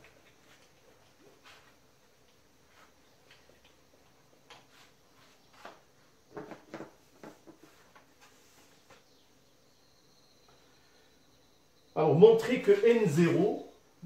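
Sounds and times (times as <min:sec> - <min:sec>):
soft knocks and handling: 0:04.4 - 0:09.1.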